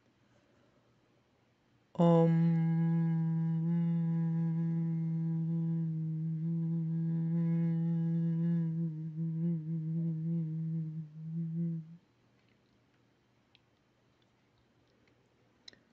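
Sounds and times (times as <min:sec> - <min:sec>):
person humming low note: 0:02.0 - 0:12.0.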